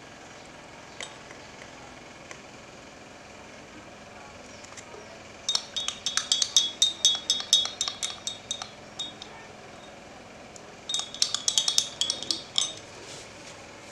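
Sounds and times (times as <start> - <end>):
spoon clinking in glass mug: 5.5 - 10.0, 10.9 - 12.9.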